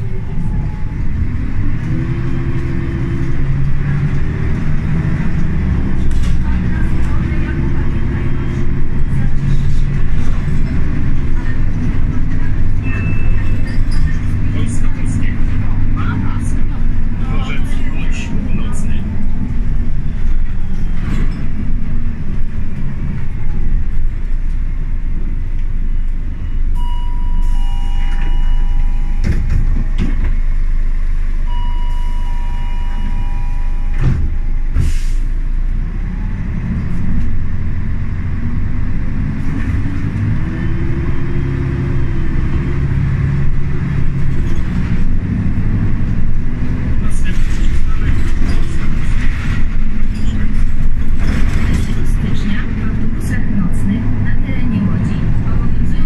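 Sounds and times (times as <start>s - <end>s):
bus engine rumbling: 0.0s - 56.0s
two-tone chime: 26.8s - 29.5s, 31.5s - 34.0s.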